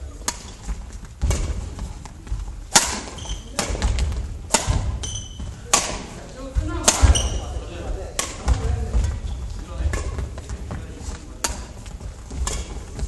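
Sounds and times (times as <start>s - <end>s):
shoes squeaking on wooden floor: 0.0s - 5.7s, 6.3s - 13.0s
rackets striking shuttlecock: 0.2s - 0.6s, 1.2s - 9.2s, 11.4s - 13.0s.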